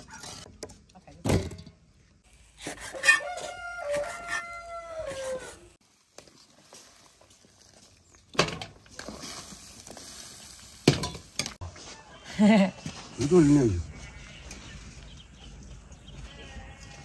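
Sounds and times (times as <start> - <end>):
rooster crowing: 3.0 - 5.6.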